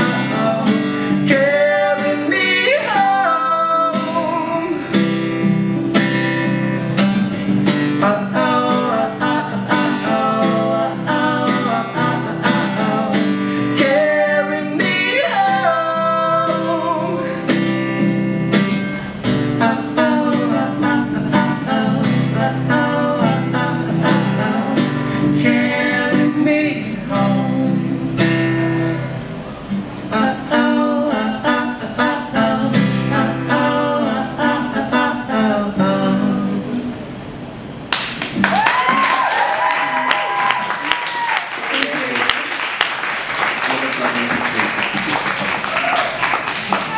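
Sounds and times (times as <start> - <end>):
acoustic guitar strumming: 0.0 - 38.4
person singing: 8.0 - 17.4, 19.6 - 28.2, 30.1 - 37.0.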